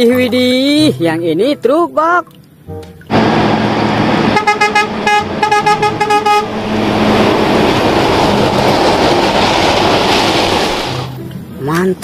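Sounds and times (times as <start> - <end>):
truck passing rushing noise: 3.1 - 11.3
truck horn short blasts: 4.3 - 6.5.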